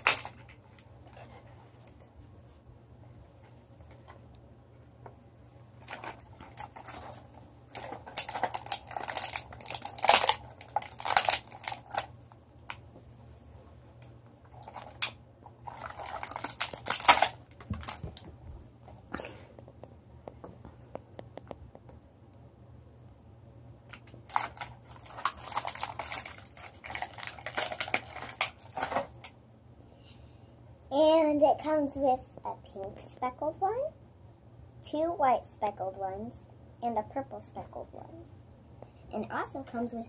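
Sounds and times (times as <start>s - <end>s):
toy packaging crinkling: 0.0s - 1.3s, 5.8s - 12.1s, 14.5s - 18.2s, 23.9s - 29.3s
small clicks and taps: 19.6s - 22.4s.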